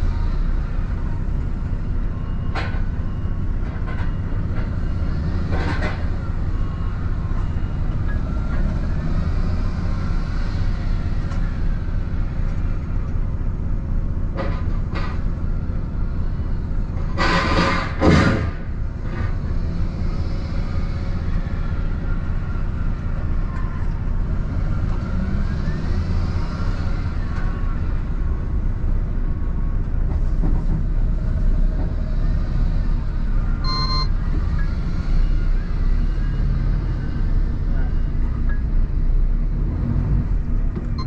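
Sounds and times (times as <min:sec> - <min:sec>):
short electronic beep: 0:33.6 - 0:34.7.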